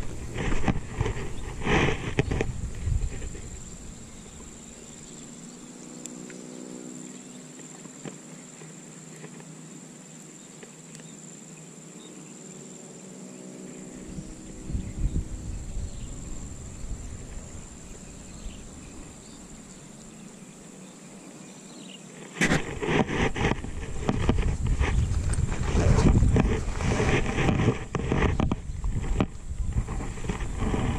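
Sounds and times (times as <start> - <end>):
wind buffeting microphone: 0.0 - 4.7, 14.0 - 19.7, 22.5 - 30.9
insects droning: 0.0 - 30.9.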